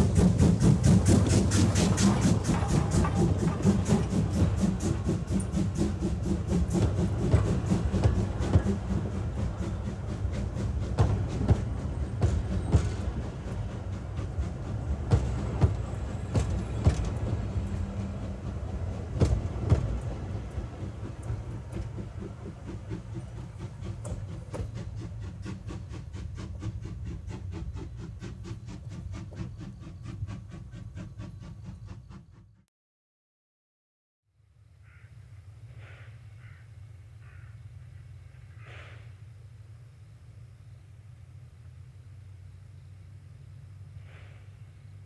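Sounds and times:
quick even train beat: 0:00.0 - 0:32.6
wheels clacking over rail joints: 0:00.0 - 0:32.6
train low rumble: 0:00.0 - 0:32.7, 0:34.4 - 0:45.0.

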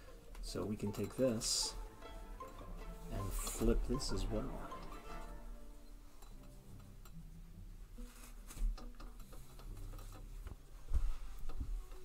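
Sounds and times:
cloth handling: 0:07.9 - 0:12.0.

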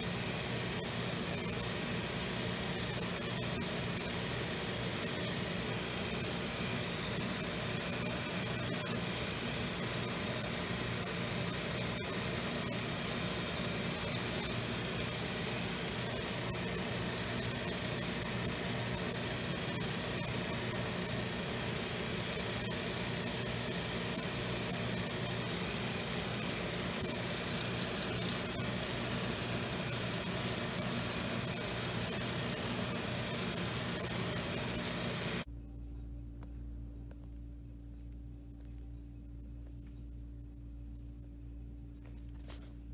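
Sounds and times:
finishing machine running: 0:00.0 - 0:35.5
low hum: 0:35.4 - 0:42.9.

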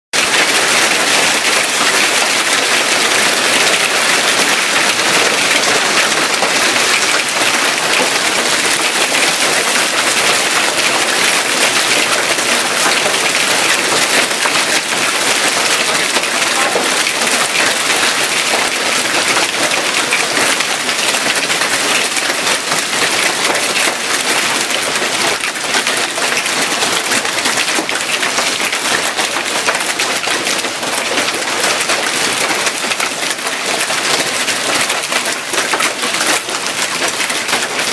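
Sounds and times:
hail clattering: 0:00.2 - 0:37.9.

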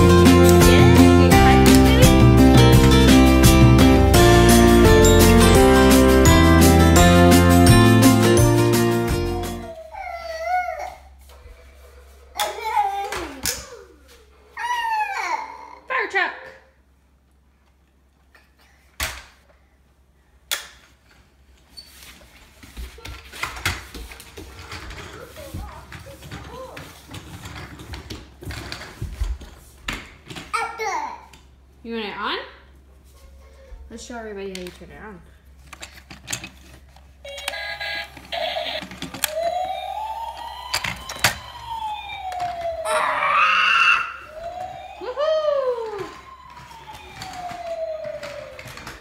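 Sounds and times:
toy siren wailing: 0:37.2 - 0:49.0.

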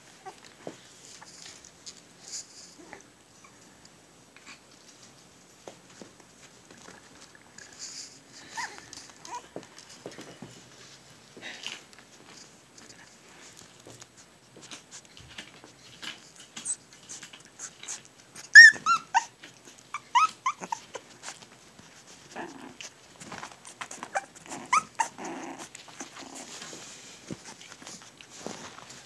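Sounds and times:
puppy play growls: 0:02.7 - 0:03.5, 0:17.6 - 0:28.8
puppies yipping and squealing: 0:17.6 - 0:21.4, 0:23.7 - 0:26.1.

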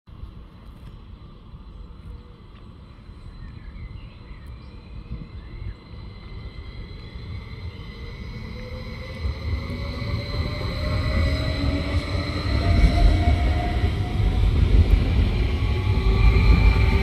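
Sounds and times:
electric train pulling away: 0:01.2 - 0:17.0
rising whine: 0:01.6 - 0:17.0.

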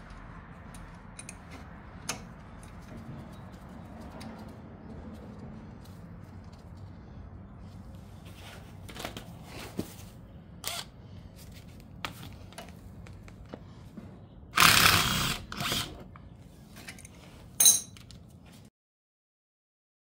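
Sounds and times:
metal tools clinking: 0:00.7 - 0:03.6, 0:16.8 - 0:18.2.

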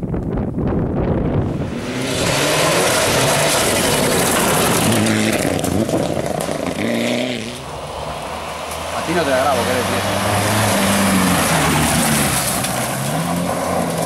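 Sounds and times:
second rally car engine: 0:01.2 - 0:14.0
rally car engine revving: 0:01.4 - 0:14.0
gravel thrown from tyres: 0:02.6 - 0:07.0.

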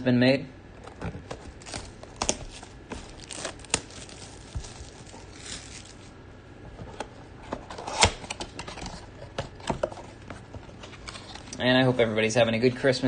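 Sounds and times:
plastic wrap crinkling and tearing: 0:01.0 - 0:06.2.

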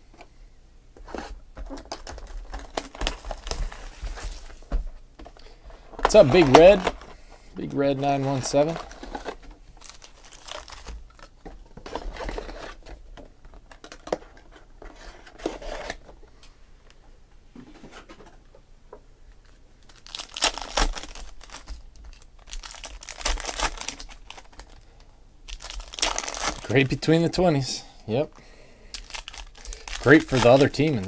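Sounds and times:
foil wrappers crinkling: 0:01.6 - 0:04.6, 0:06.0 - 0:13.0, 0:19.4 - 0:24.9, 0:25.5 - 0:27.0, 0:28.9 - 0:31.0
foil pack tearing: 0:09.8 - 0:11.0, 0:19.9 - 0:24.8, 0:25.5 - 0:26.8, 0:29.0 - 0:31.0.

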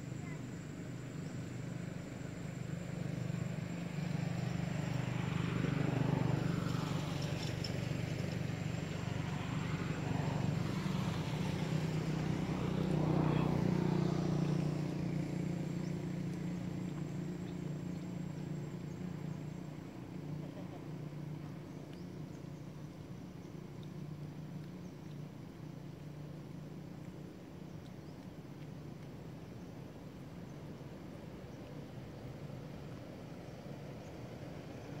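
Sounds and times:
vehicles passing: 0:03.9 - 0:28.4.

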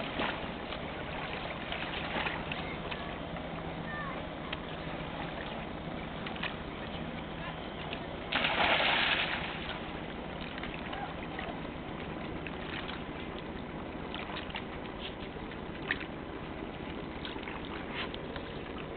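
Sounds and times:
water sloshing: 0:00.0 - 0:18.9
dog splashing into water: 0:08.3 - 0:09.9.

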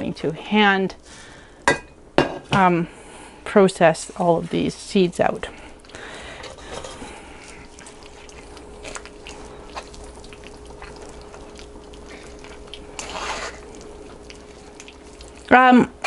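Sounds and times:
juice dripping into metal bowl: 0:05.7 - 0:16.0
squishing rush: 0:06.8 - 0:15.6.

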